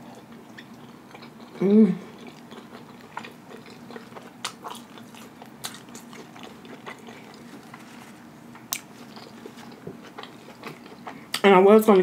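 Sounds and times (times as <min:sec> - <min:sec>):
person chewing with wet smacks: 0:00.0 - 0:11.5.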